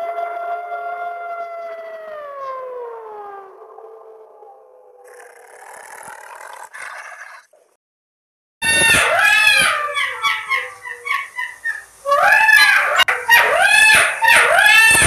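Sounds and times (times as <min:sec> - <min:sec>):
wild canids yipping and howling: 0:08.6 - 0:15.0.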